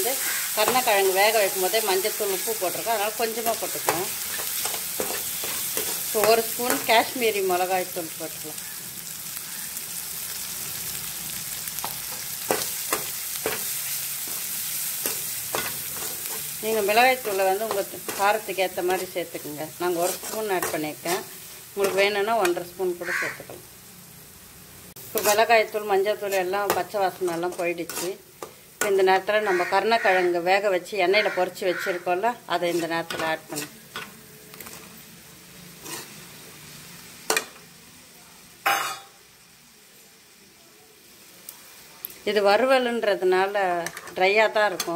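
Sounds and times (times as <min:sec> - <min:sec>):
masala sizzling in hot oil: 0:00.0 - 0:44.9
metal spatula scraping pan: 0:03.4 - 0:06.9, 0:11.8 - 0:19.3, 0:19.9 - 0:22.0, 0:25.2 - 0:25.5, 0:26.2 - 0:28.5, 0:32.6 - 0:35.0, 0:35.8 - 0:36.2
metal scraping pan: 0:26.3 - 0:28.2.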